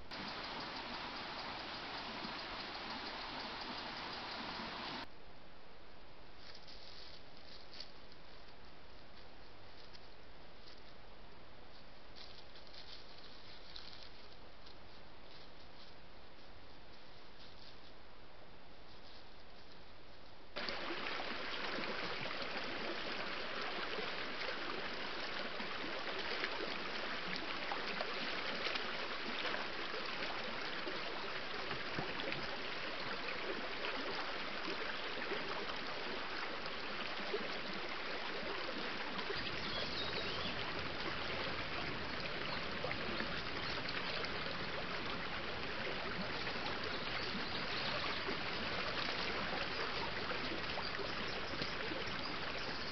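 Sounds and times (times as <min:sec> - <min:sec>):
stream rushing and trickling: 0:00.0 - 0:05.1, 0:20.6 - 0:52.9.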